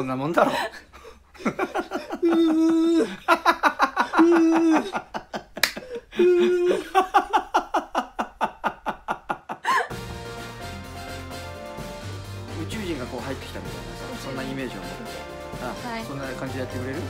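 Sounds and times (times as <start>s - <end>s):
people laughing: 0.3s - 9.9s.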